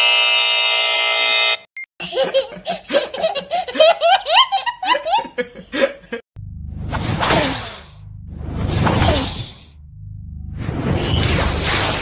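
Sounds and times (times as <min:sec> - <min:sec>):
wrong-answer buzzer tone: 0:00.0 - 0:01.7
toddler belly laughing: 0:02.0 - 0:05.4.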